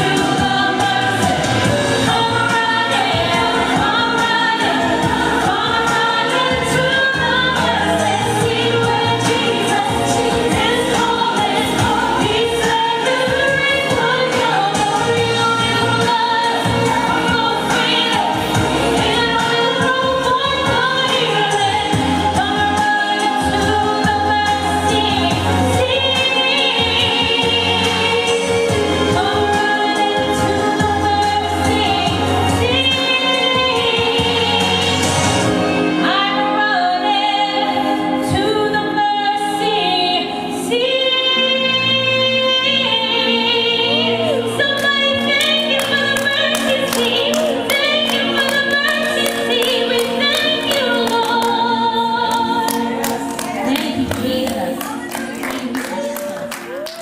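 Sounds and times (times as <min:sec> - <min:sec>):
backing track with bass: 0:00.0 - 0:36.0
background choir vocals: 0:00.0 - 0:56.5
woman singing: 0:00.0 - 0:57.0.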